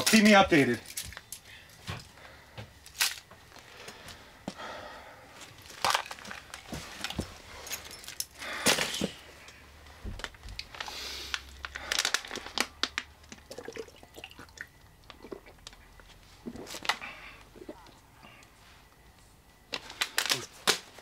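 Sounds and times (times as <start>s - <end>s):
plastic bottle crinkling: 5.6s - 7.4s, 10.1s - 15.8s, 19.7s - 21.0s.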